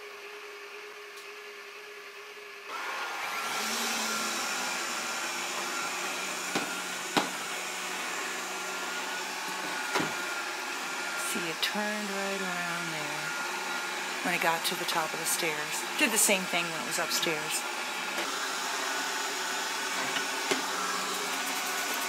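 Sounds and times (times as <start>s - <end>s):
robot vacuum cleaner whine: 1.6s - 22.0s.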